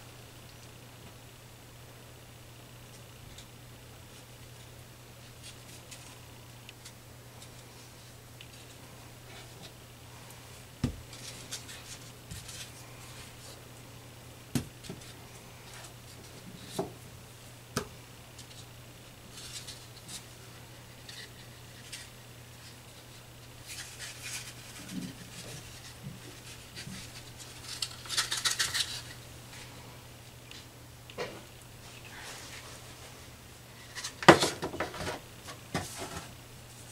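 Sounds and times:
steady low hum: 0.0s - 36.9s
scraping and rubbing of dough: 4.2s - 13.6s, 18.3s - 29.8s, 31.3s - 36.9s.

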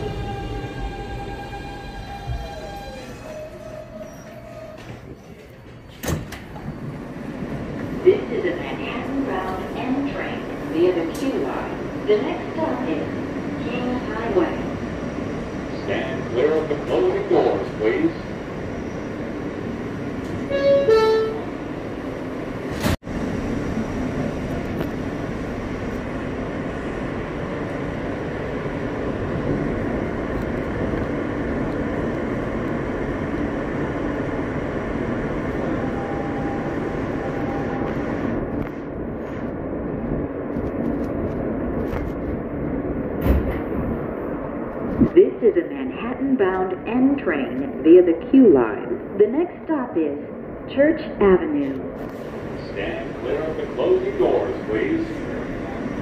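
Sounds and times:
subway train wheels rumbling: 0.0s - 56.0s
short horn-like tone: 20.5s - 21.5s.

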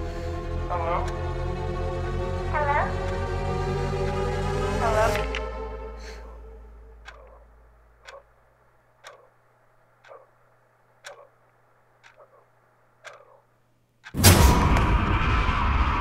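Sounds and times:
low drone: 0.0s - 8.6s
clock ticking: 0.0s - 14.2s.

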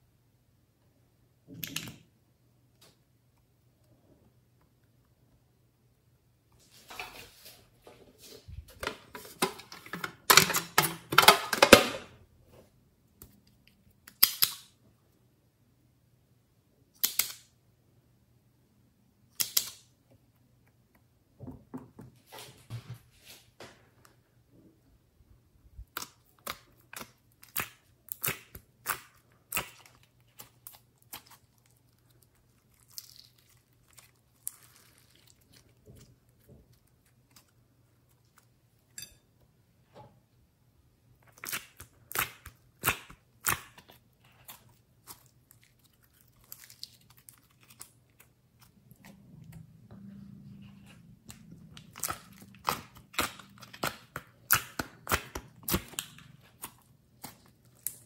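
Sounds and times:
slime squishing: 25.8s - 38.9s, 41.2s - 58.0s.

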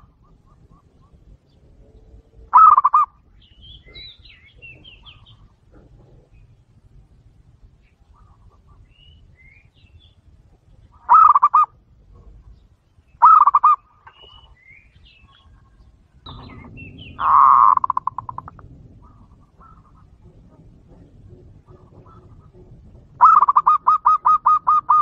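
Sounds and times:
dove cooing: 0.0s - 3.2s, 3.8s - 6.8s, 10.9s - 12.5s, 13.2s - 14.5s, 15.2s - 25.0s.

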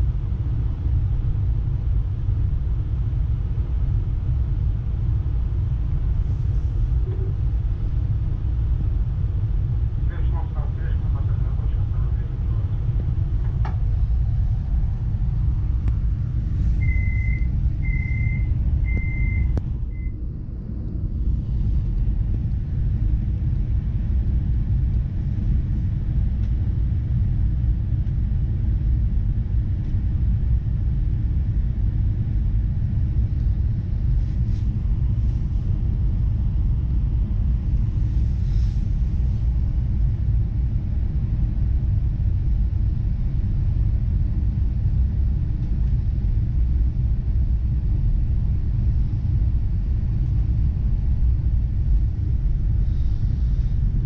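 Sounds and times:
faint steady hum: 0.0s - 54.0s
train carriage low rumble: 0.0s - 54.0s
door warning beeps: 16.8s - 20.1s.

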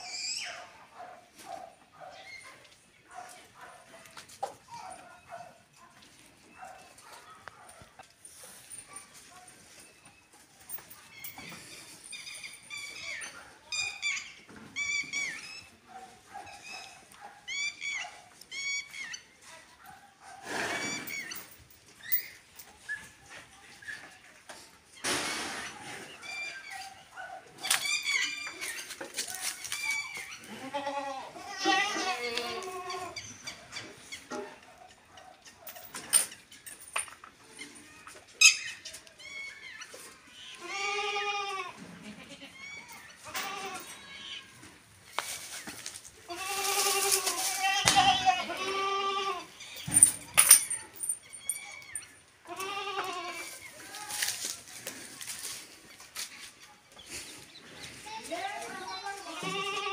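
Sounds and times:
high squeaky calls: 0.0s - 0.7s, 11.0s - 15.9s, 16.5s - 19.4s, 20.7s - 23.1s, 27.6s - 31.0s, 37.5s - 40.6s, 51.1s - 52.7s
high-pitched animal calls: 0.0s - 0.8s, 16.6s - 19.3s
farm animal bleating: 29.8s - 33.3s, 40.3s - 44.6s, 46.2s - 49.7s, 52.4s - 54.4s, 58.3s - 59.9s.

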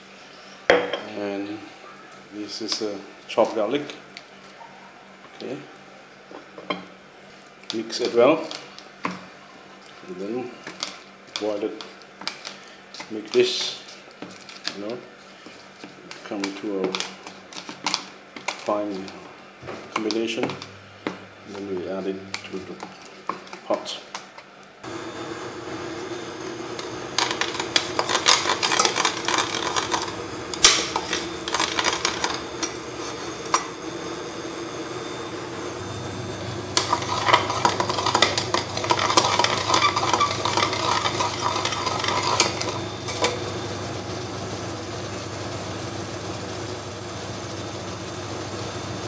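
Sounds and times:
sugar sizzling in a pot: 24.8s - 45.6s
utensil scraping a pot: 26.8s - 33.8s, 36.6s - 43.5s.

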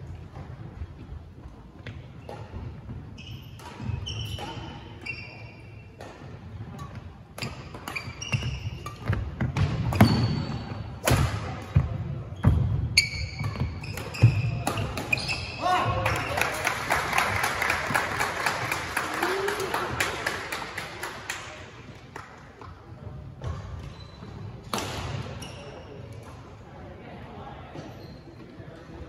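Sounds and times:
shoe squeaks: 2.2s - 6.0s, 6.8s - 10.9s, 12.3s - 15.8s, 23.5s - 24.6s, 25.3s - 26.0s, 27.8s - 28.6s.

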